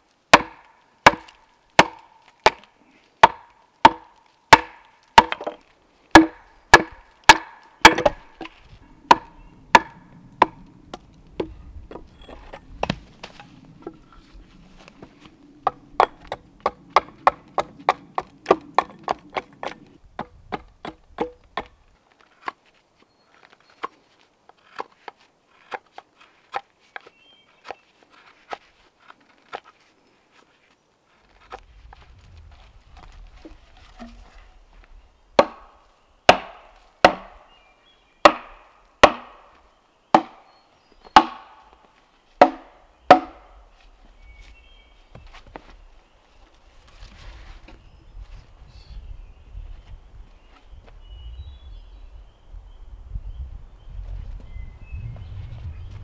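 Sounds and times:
tool striking wood: 0:00.3 - 0:12.0, 0:35.4 - 0:37.4, 0:38.2 - 0:39.5, 0:40.1 - 0:40.4, 0:41.2 - 0:41.6, 0:42.4 - 0:43.5.

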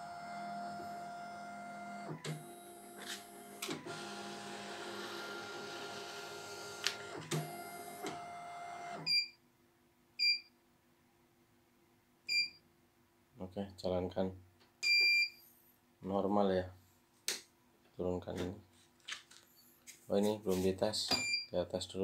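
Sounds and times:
short keypad beeps: 0:10.2 - 0:10.5, 0:12.3 - 0:12.6, 0:14.8 - 0:15.4, 0:21.2 - 0:21.5.

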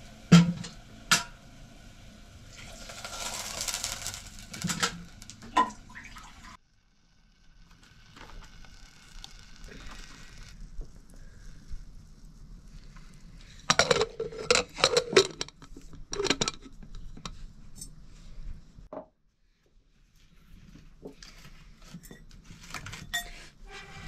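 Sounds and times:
metal pots and utensils clanking: 0:00.3 - 0:01.4, 0:03.0 - 0:05.9, 0:13.7 - 0:17.3, 0:23.0 - 0:23.4.

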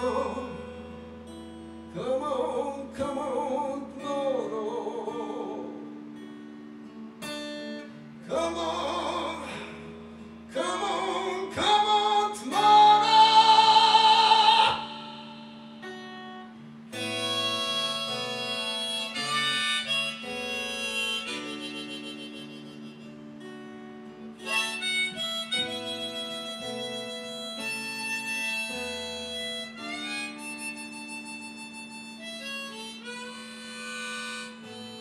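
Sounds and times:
man singing: 0:00.0 - 0:00.7, 0:01.9 - 0:05.7, 0:08.3 - 0:09.9, 0:10.5 - 0:15.8
harmonica: 0:00.0 - 0:03.7, 0:10.5 - 0:35.0
strummed acoustic guitar: 0:00.0 - 0:35.0.

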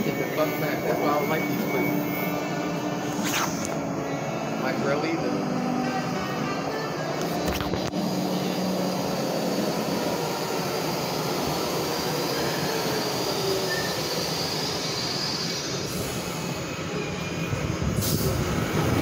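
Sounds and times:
train wheels rumbling on rail: 0:07.1 - 0:19.0.

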